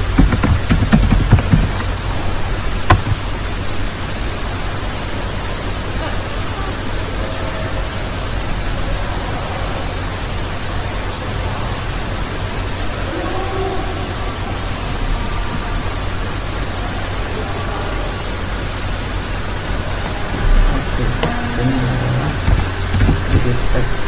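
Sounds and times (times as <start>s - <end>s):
microphone hiss and hum: 0.0s - 24.0s.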